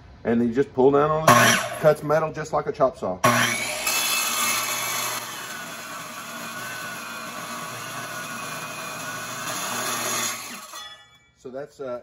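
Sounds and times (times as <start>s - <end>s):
saw blade grinding metal: 1.3s - 2.0s, 3.2s - 11.3s.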